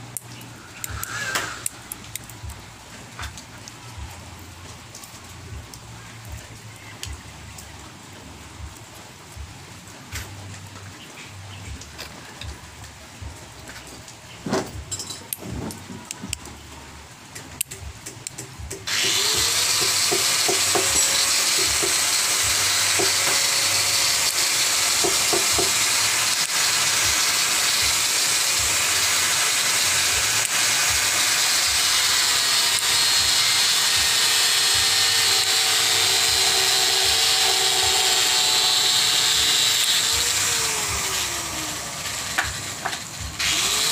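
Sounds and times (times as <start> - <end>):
small electric motor whirring: 0.1 - 2.6, 17.6 - 43.9.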